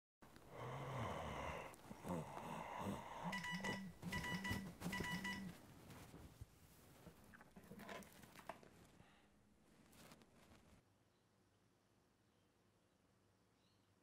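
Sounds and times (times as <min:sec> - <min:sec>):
low phone buzz: 0:03.2 - 0:05.6
phone rapid electronic beeps: 0:03.3 - 0:05.6.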